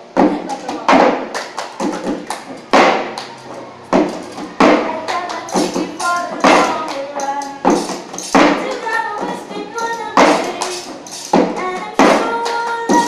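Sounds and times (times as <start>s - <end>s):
hand claps: 0.5s - 13.0s
girls singing: 3.4s - 13.0s.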